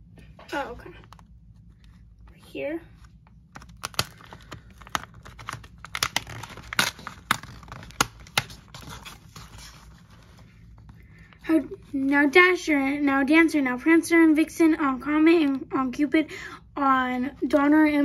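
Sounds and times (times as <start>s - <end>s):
cardboard tearing: 3.5s - 10.2s.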